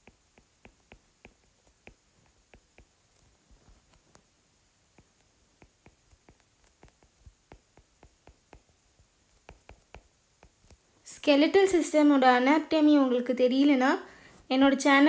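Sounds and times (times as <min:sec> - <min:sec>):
stylus tapping on tablet screen: 0:00.0 - 0:04.3, 0:04.9 - 0:10.8.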